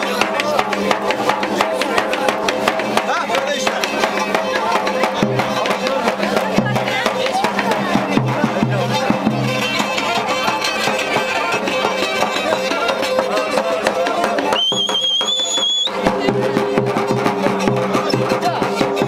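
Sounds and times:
fast drum beat: 0.0s - 19.0s
shrill whistle: 14.5s - 16.0s.

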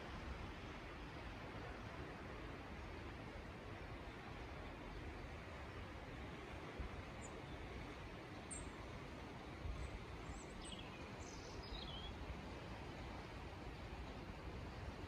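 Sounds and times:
faint outdoor hiss: 0.0s - 15.0s
small birds chirping: 10.2s - 12.2s.

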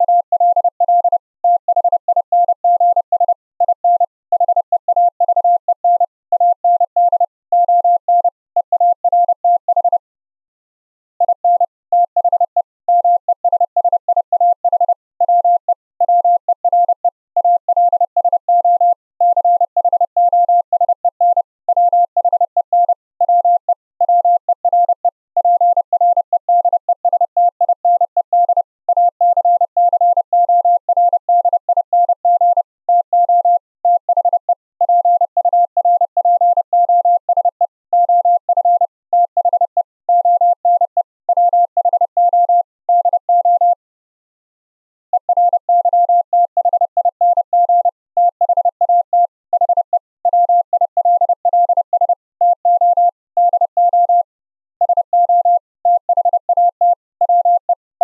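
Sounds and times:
morse code tone: 0.0s - 3.0s, 45.1s - 49.9s, 50.6s - 57.8s.

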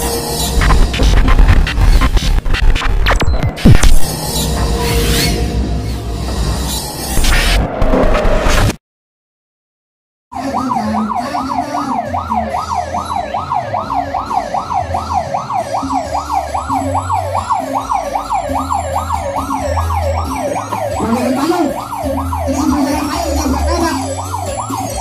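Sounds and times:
electronic siren yelping: 10.3s - 25.0s.

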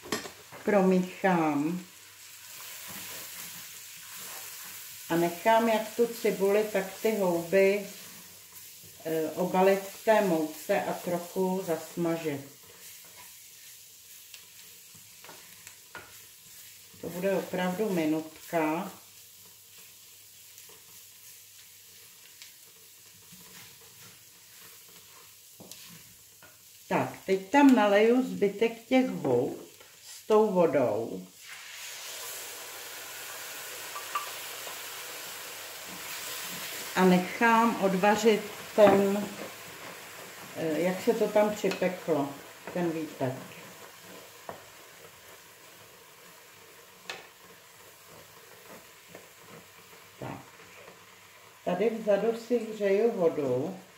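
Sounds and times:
food sizzling in a frying pan: 0.0s - 53.9s
wooden spoon scraping a pan: 2.4s - 27.2s, 35.8s - 51.3s
spoon knocking against pan: 38.8s - 39.2s.

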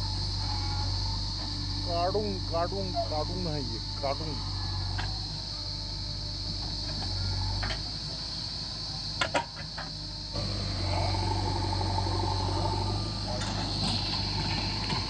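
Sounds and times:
diesel engine running: 0.0s - 7.0s, 10.0s - 15.0s
backhoe arm digging soil: 10.4s - 15.0s.

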